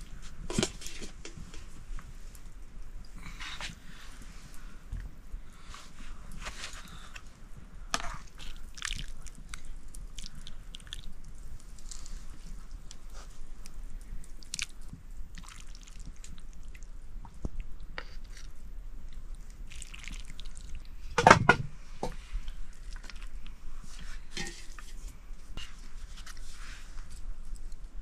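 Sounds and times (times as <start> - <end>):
chewing noodles: 8.0 - 21.0.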